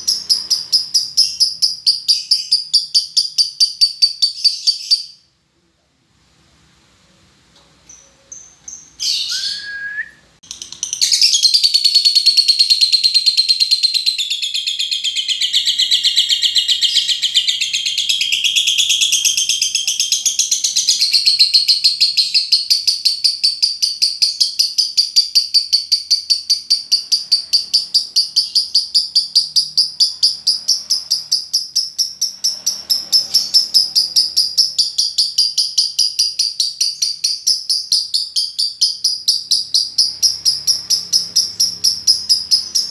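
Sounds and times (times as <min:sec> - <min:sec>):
lovebird high chattering trill: 0:10.4 - 0:42.9.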